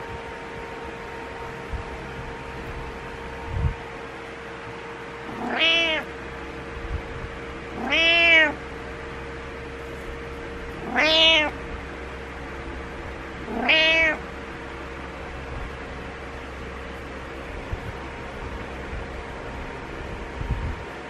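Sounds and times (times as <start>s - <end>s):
cat meowing: 5.3s - 6.1s, 7.7s - 8.6s, 10.8s - 11.6s, 13.4s - 14.2s.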